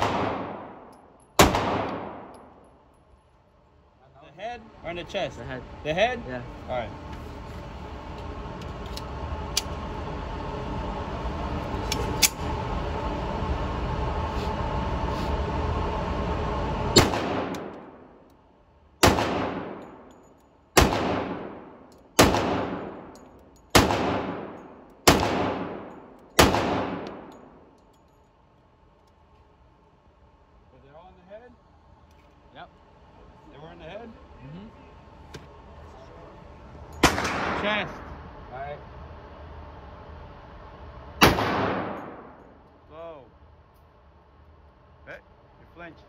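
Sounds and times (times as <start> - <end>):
pistol shots echoing indoors: 0.0 - 2.4, 19.0 - 19.8, 20.8 - 27.4, 41.2 - 42.4.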